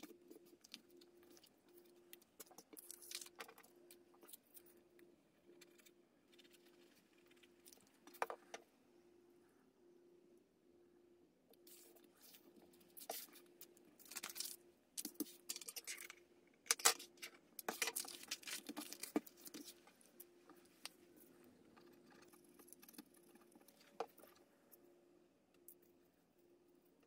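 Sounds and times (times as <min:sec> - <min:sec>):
paper rustling and crinkling: 0:14.0 - 0:20.0.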